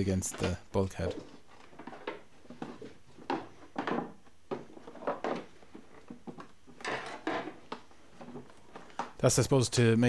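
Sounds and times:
plastic housing creaking and scraping: 0:00.0 - 0:09.2.

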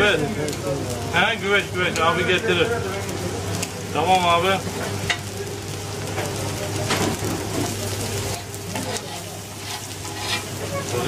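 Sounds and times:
fish sizzling on griddle: 0:00.0 - 0:11.0.

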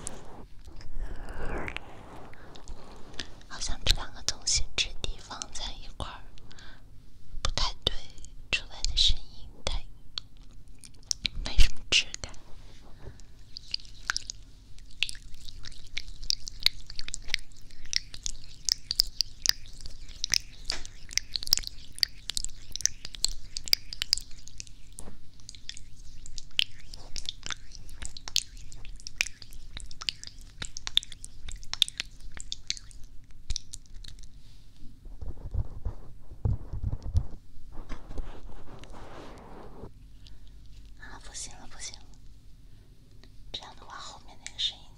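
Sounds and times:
gloves crinkling on microphone: 0:35.0 - 0:39.9.

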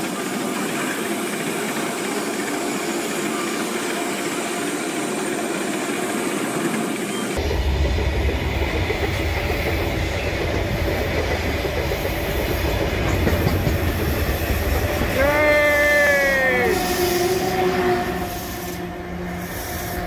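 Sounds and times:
freight wagons clattering on rails: 0:07.4 - 0:15.2.

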